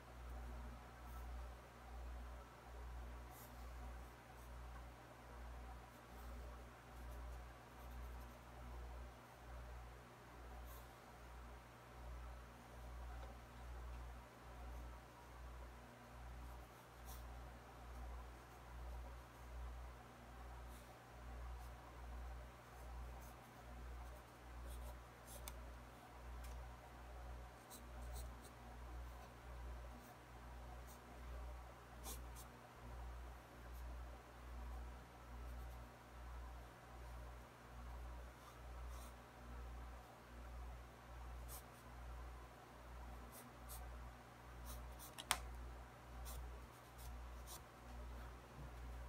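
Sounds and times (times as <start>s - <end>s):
pencil scratching on paper: 16.4s - 17.4s, 22.6s - 25.6s, 32.0s - 32.5s, 43.3s - 43.8s, 46.2s - 47.7s.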